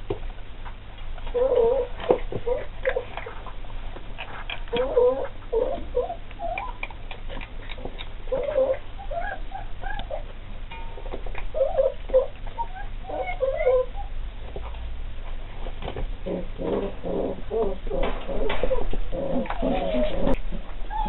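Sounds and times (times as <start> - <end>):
puppies chewing: 0.0 - 21.0
puppies whining: 1.2 - 3.6, 4.2 - 14.2, 16.2 - 21.0.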